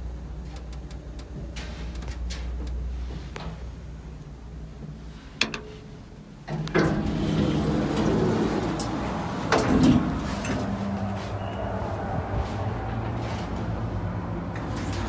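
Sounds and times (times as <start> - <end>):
elevator doors sliding open: 5.4 - 15.0.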